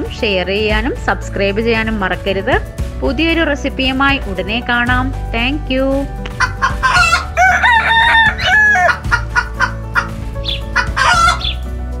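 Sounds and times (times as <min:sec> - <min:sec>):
music with steady beat: 0:00.0 - 0:12.0
chicken clucking: 0:06.4 - 0:07.3, 0:08.8 - 0:11.6.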